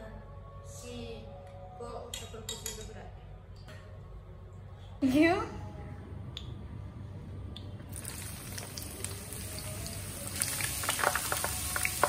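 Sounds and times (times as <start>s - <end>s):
food sizzling in hot oil: 7.9s - 12.0s
oil crackling and popping: 7.9s - 12.0s.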